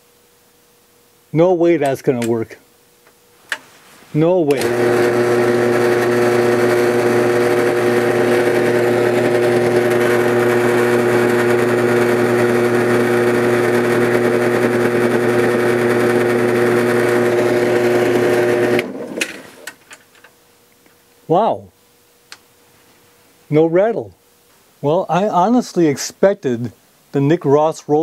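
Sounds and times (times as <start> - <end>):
drill press motor running: 4.5 - 19.8.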